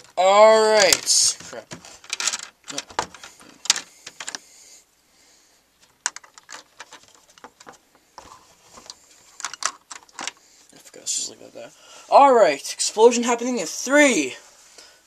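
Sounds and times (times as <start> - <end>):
plastic bricks clicking and rattling: 0.8 - 4.4, 5.8 - 7.8, 9.4 - 10.4.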